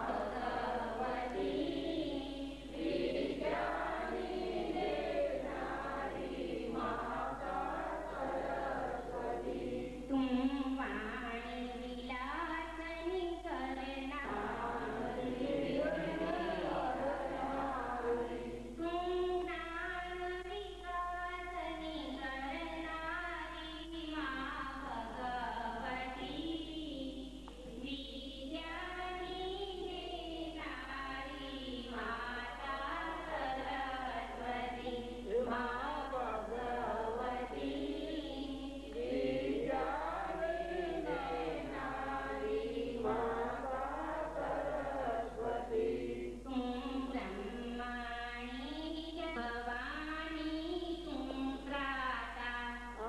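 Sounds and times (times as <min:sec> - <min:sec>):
group singing slow chant: 0:00.0 - 0:11.0, 0:14.2 - 0:18.8, 0:31.8 - 0:47.9.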